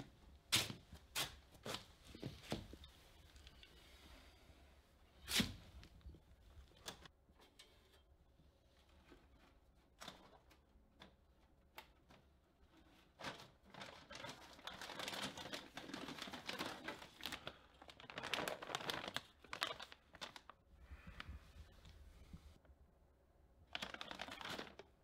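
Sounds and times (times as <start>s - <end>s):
hand rummaging through shelf: 11.9s - 20.5s
plastic crinkling: 13.0s - 21.8s, 23.7s - 25.0s.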